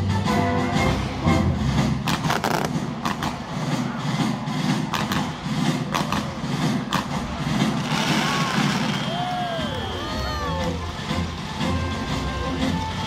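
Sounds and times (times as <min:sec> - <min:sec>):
fireworks shells bursting: 0:02.0 - 0:03.6, 0:04.7 - 0:09.3.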